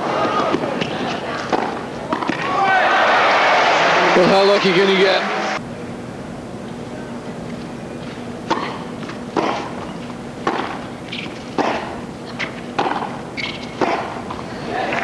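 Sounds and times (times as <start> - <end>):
tennis ball bouncing: 1.5 - 2.4, 8.5 - 14.5
tennis racket hitting ball: 9.4 - 9.8, 10.4 - 14.4.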